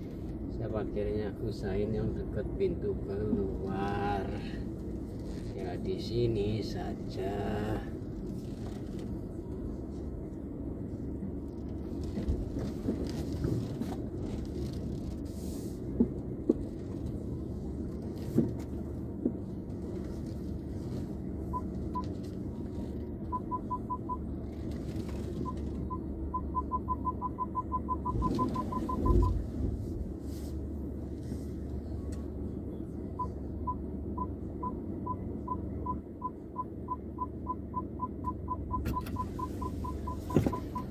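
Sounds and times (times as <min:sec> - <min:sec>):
car cabin hum: 0:00.0 - 0:40.9
parking sensor beeping: 0:21.5 - 0:22.1, 0:23.2 - 0:24.3, 0:25.3 - 0:29.5, 0:33.2 - 0:40.9.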